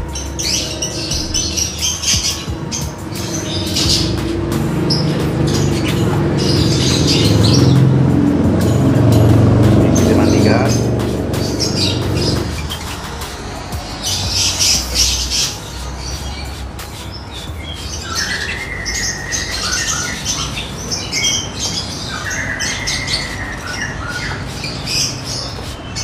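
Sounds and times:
lovebirds squawking and chattering: 0.0s - 26.0s.

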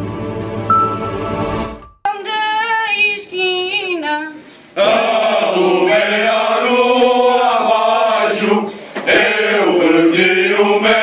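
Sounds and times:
single high voice singing: 2.1s - 11.0s
male choir singing: 4.8s - 11.0s.

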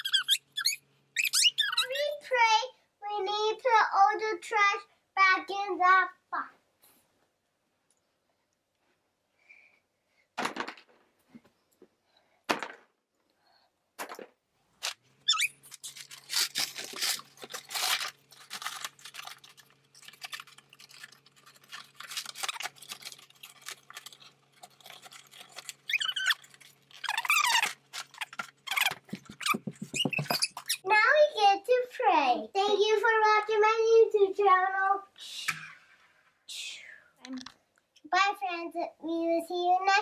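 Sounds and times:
high squeaks: 0.0s - 2.1s, 15.2s - 17.2s, 25.3s - 30.9s.

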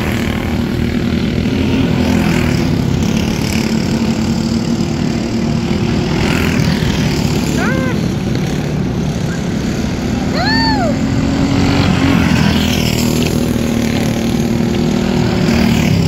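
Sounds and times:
go-kart engines racing: 0.0s - 16.0s
high rising and falling call: 9.2s - 11.4s.

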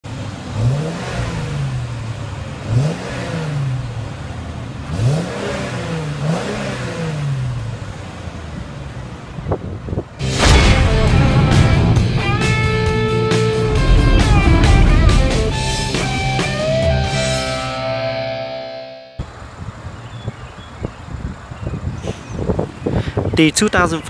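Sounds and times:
car engine revving and idling: 0.0s - 17.7s.

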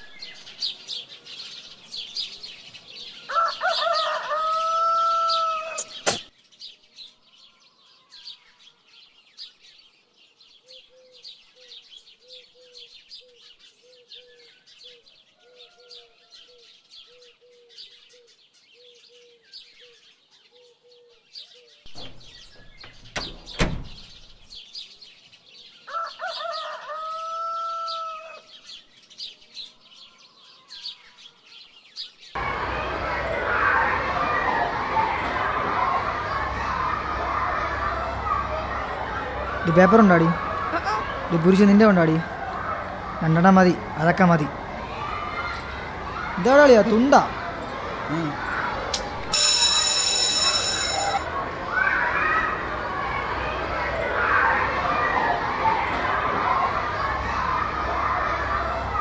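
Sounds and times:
small birds twittering: 0.0s - 35.2s
rooster crowing: 3.3s - 6.0s, 25.9s - 28.5s
thud with sharp click: 5.8s - 6.3s.

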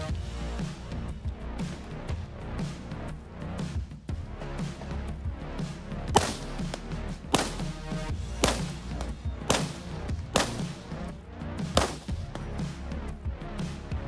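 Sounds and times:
background music with beat: 0.0s - 14.0s
rifle shots: 6.1s - 6.7s, 7.3s - 10.9s, 11.7s - 12.2s.

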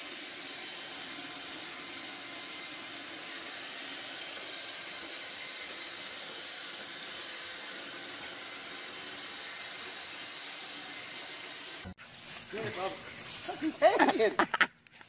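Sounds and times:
robot vacuum cleaner whirring: 0.0s - 12.0s.

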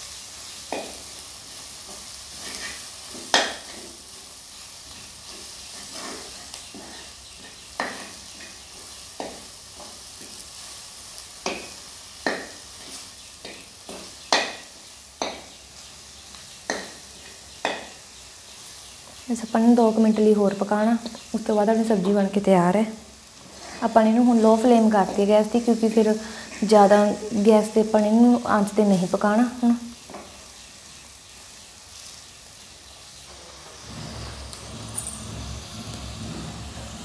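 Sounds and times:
food sizzling: 0.0s - 37.0s
metal spoon scraping a pan: 1.8s - 4.0s, 4.9s - 10.8s, 23.4s - 24.6s.

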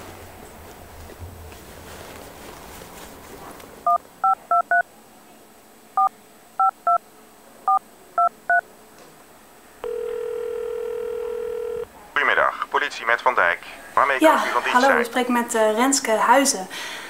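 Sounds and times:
phone keypad beeps: 3.9s - 4.8s
phone ringing tone: 9.8s - 11.9s.

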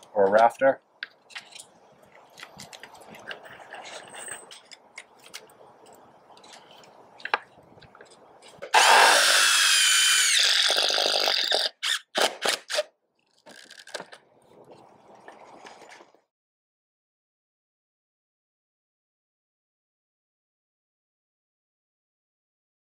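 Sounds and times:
cordless drill driving a screw: 8.7s - 12.9s.

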